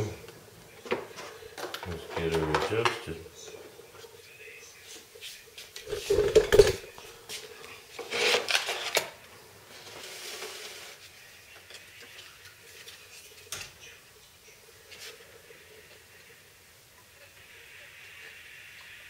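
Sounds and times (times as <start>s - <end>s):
scraping and rubbing handling noise: 5.3s - 9.1s, 9.7s - 11.2s.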